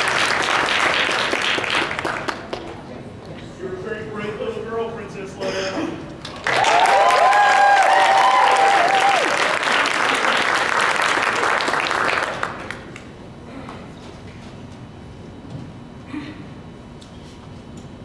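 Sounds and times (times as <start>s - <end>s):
audience applauding: 0.0s - 2.7s, 6.2s - 13.1s
audience cheering: 6.4s - 10.4s.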